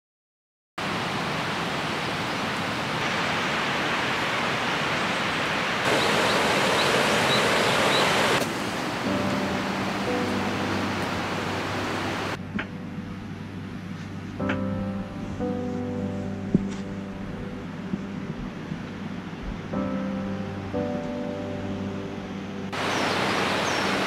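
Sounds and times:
river rushing: 0:00.8 - 0:12.4, 0:22.7 - 0:24.0
faint bird chirps: 0:05.9 - 0:08.4, 0:22.8 - 0:24.0
low steady hum: 0:05.9 - 0:24.0.

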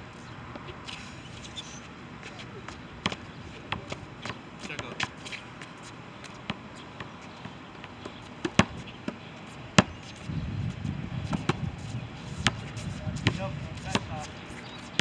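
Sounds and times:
basketball bouncing on asphalt: 0:02.7 - 0:11.7, 0:12.4 - 0:14.3.

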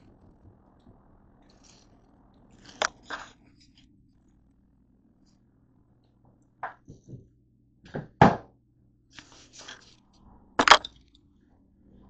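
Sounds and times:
rustle of handling: 0:09.2 - 0:10.0.

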